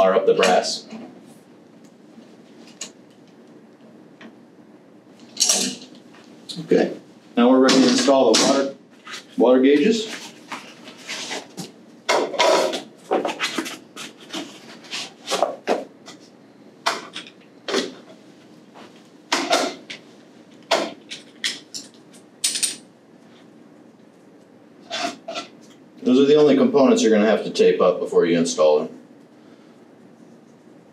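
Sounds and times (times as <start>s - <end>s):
metal parts clicking and knocking: 21.1s - 22.8s.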